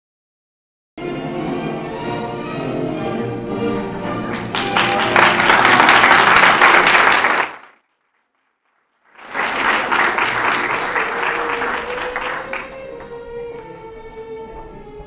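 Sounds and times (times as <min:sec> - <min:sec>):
background music: 0:01.0 - 0:06.8, 0:09.4 - 0:15.0
audience applauding: 0:04.3 - 0:08.3, 0:08.9 - 0:13.2.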